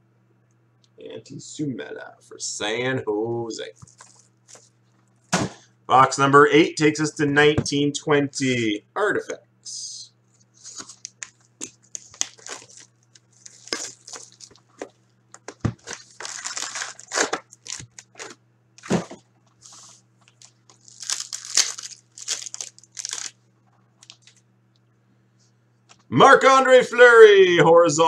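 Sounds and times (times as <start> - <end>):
cellophane crinkling and tearing: 3.8 - 4.6, 10.6 - 18.4, 19.6 - 23.4, 24.0 - 24.4
foil packs rustling: 3.8 - 4.7, 10.6 - 23.4.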